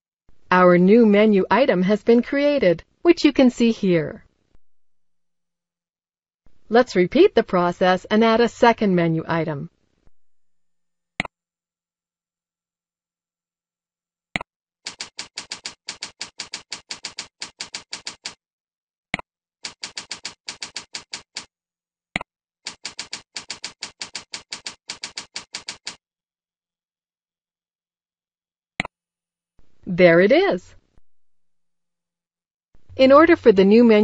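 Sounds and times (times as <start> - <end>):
keyboard typing: 14.8 - 18.4, 19.6 - 21.5, 22.6 - 26.0
computer mouse clicks: 14.9 - 18.4.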